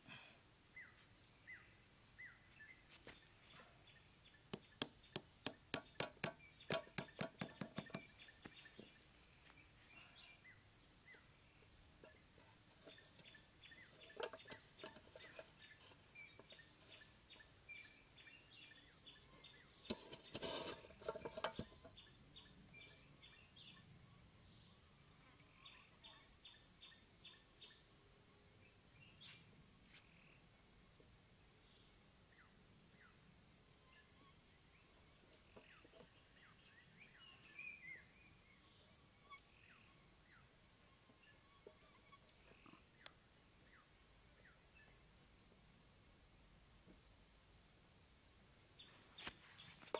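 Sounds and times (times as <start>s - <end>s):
small birds chirping: 0.1s - 45.2s
scraping and rustling on sand: 19.8s - 21.8s
faint bird chirps: 33.8s - 45.1s.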